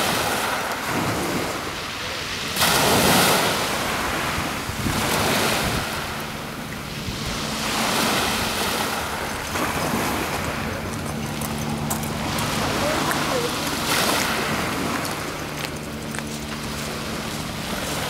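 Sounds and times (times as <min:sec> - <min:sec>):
waves washing: 0:00.0 - 0:18.0
wind gusting across microphone: 0:00.0 - 0:18.0.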